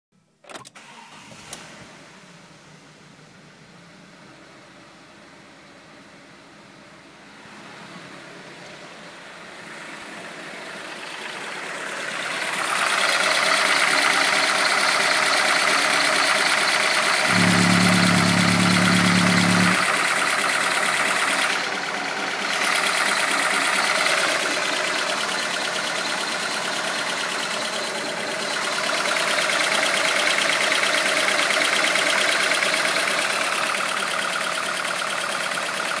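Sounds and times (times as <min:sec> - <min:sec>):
car engine idling: 0:10.9 - 0:36.0
steady low hum: 0:17.3 - 0:19.8.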